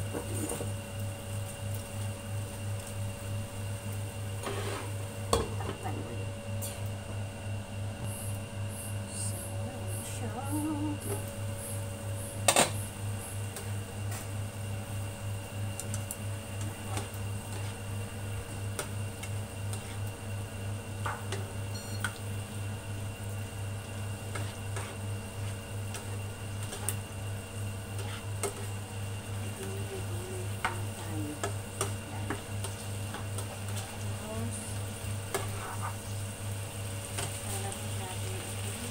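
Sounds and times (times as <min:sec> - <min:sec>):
induction hob humming: 0:00.0 - 0:38.9.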